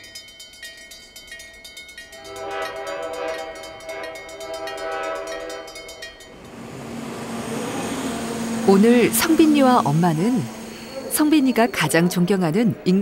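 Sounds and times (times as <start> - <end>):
train horn: 2.2 - 11.7.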